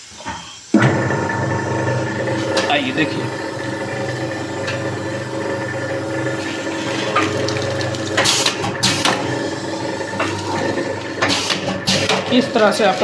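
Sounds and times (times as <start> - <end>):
pneumatic air hisses: 0.0 - 0.8
machine motor hum: 0.8 - 13.0.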